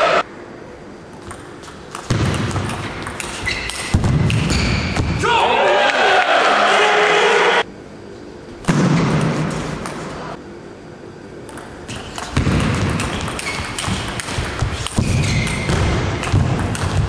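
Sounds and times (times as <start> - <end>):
table tennis ball clicking: 1.2 - 4.4, 11.4 - 17.0.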